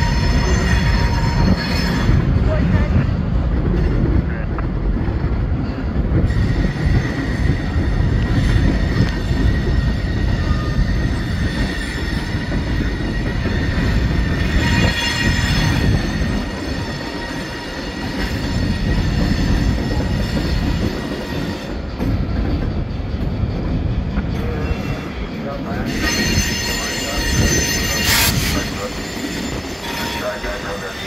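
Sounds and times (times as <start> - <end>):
high wheel squeal: 0.0 - 2.2, 6.2 - 21.7, 24.4 - 31.0
train rumbling over steel bridge: 0.0 - 31.0.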